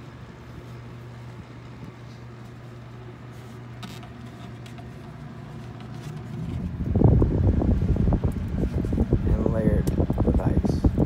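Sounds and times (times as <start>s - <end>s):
fan humming: 0.0s - 11.0s
rumble and buffeting: 0.0s - 11.0s.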